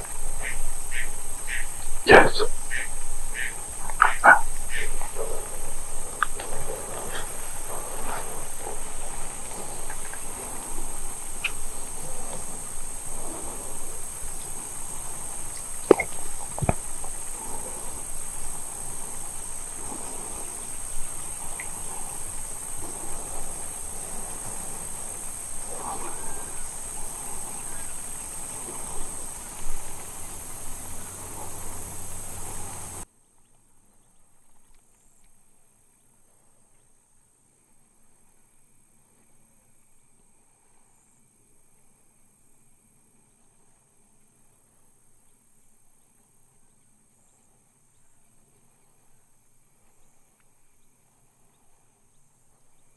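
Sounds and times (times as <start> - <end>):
rustle of grass: 0.0 - 33.0
crickets chirping: 0.0 - 33.1, 35.0 - 52.9.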